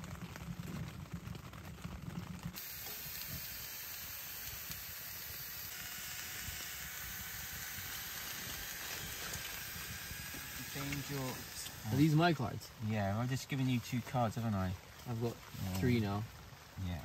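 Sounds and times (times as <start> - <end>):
food sizzling in a pot: 2.6 - 12.6.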